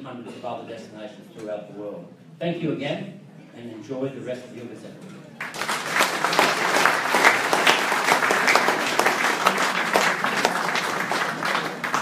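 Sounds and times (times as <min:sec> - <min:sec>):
audience applauding: 0:05.4 - 0:12.0.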